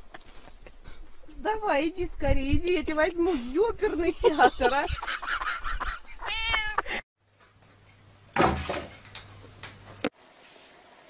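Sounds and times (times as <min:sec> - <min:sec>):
cat meowing: 0:06.2 - 0:06.8.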